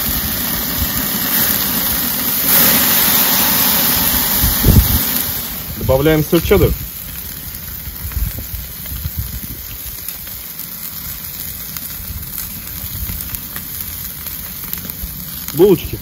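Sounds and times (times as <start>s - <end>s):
low bumps: 0.0s - 10.0s
fat crackling: 0.0s - 16.0s
meat sizzling on a grill: 0.0s - 16.0s.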